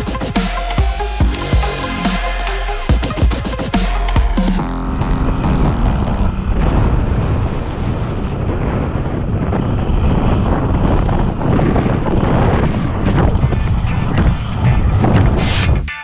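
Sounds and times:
low rumble of riding: 0:00.0 - 0:15.9
wind rushing over microphone: 0:04.9 - 0:15.9.

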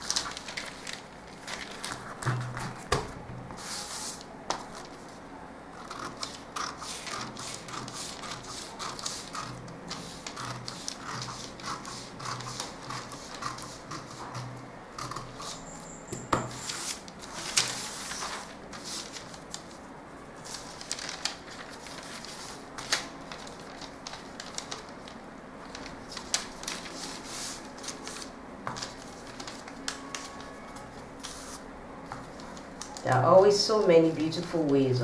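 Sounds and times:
paper rustling and sliding: 0:00.0 - 0:05.2, 0:16.4 - 0:19.8, 0:20.4 - 0:33.2
scissors cutting paper: 0:05.8 - 0:15.6.

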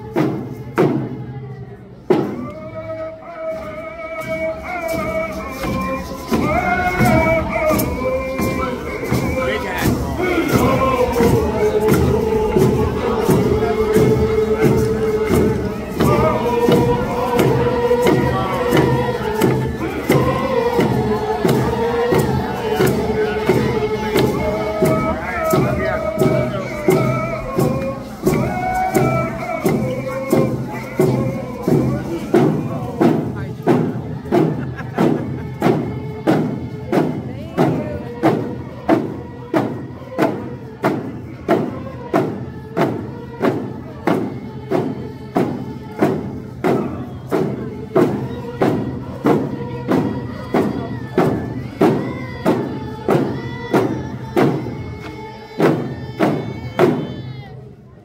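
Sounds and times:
group chanting in unison: 0:02.4 - 0:33.1
drum beat: 0:04.2 - 0:57.4.

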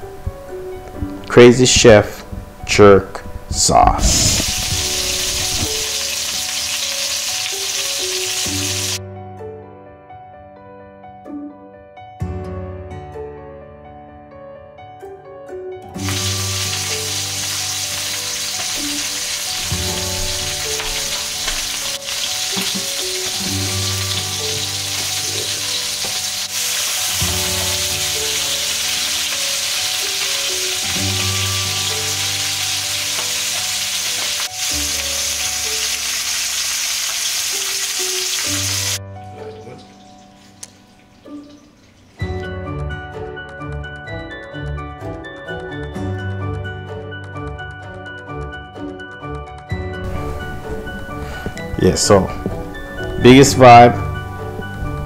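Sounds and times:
background music with low pattern: 0:00.0 - 0:36.5, 0:38.2 - 0:55.0
meat sizzling in a frying pan: 0:04.0 - 0:09.0, 0:16.0 - 0:39.0.

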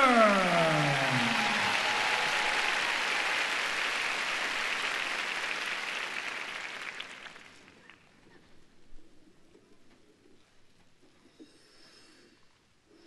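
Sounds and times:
audience applauding: 0:00.0 - 0:08.1.

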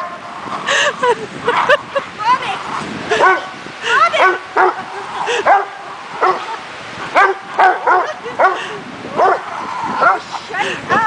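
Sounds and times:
dogs barking and yipping: 0:03.1 - 0:10.4.

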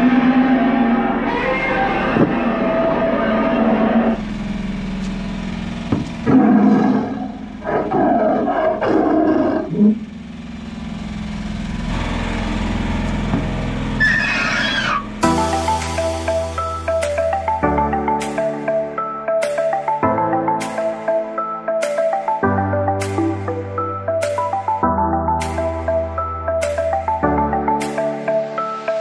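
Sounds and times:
animal roars and growls: 0:00.0 - 0:04.2, 0:06.2 - 0:10.1, 0:14.0 - 0:15.1
low steady hum: 0:02.0 - 0:15.4.

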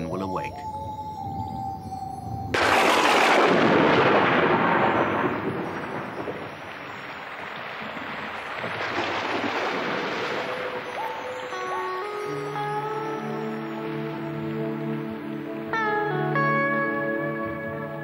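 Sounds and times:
thunder rolling: 0:02.5 - 0:11.5
rain falling on rock and pools: 0:02.6 - 0:16.4.

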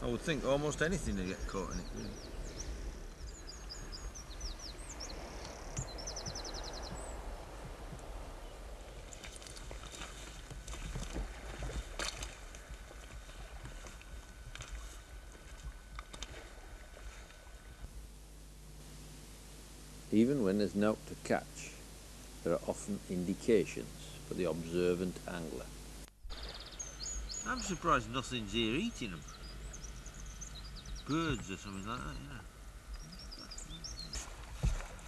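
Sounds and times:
wind and water hiss: 0:00.0 - 0:35.0
small bird chirping: 0:00.4 - 0:07.2, 0:26.3 - 0:34.4.

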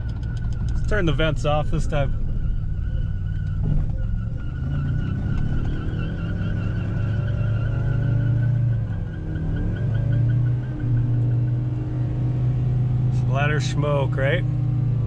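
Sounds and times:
steady high whine: 0:00.0 - 0:04.7.

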